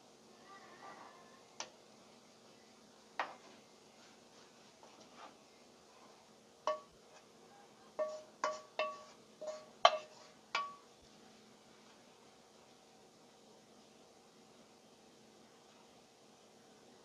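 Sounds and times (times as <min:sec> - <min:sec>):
frying pan clinking on metal tray: 0:06.7 - 0:07.0, 0:08.0 - 0:10.9.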